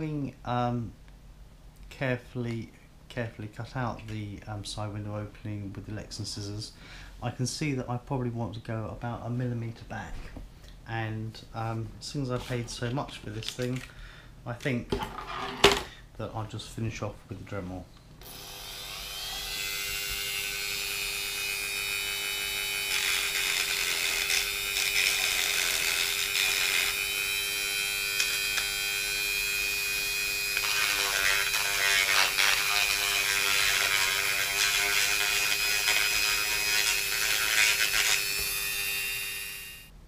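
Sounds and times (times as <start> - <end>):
rotary tool sanding plastic: 18.8 - 39.7.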